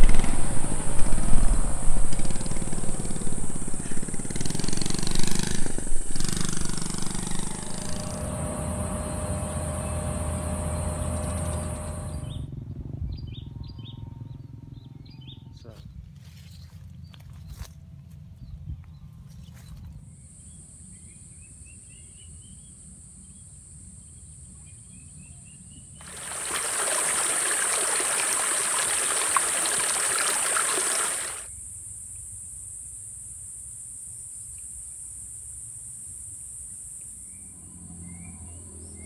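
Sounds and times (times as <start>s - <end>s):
high-pitched insect drone: 0.0s - 12.4s
stream splashing over stones: 26.0s - 31.5s.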